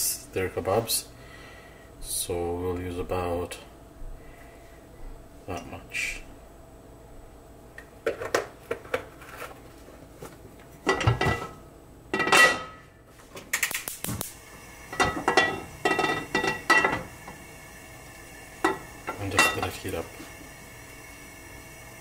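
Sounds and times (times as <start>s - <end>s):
metal cookware clinking and clattering: 10.8s - 12.8s, 14.9s - 17.1s, 18.6s - 19.8s.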